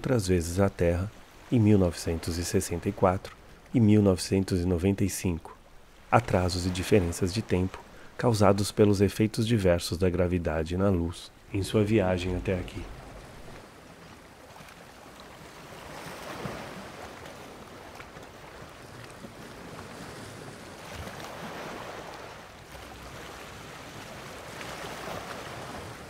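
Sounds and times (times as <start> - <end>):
soft toneless rushing noise: 11.0 - 13.6.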